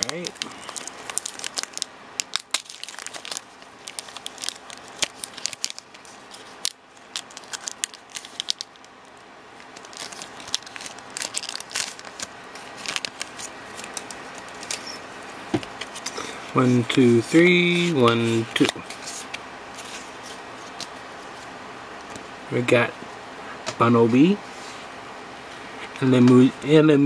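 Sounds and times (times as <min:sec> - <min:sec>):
foil wrapper crinkling: 0:00.0 - 0:15.0.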